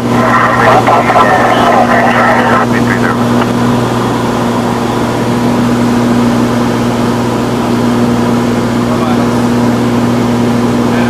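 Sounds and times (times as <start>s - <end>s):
airplane engines droning in cockpit: 0.0s - 11.0s.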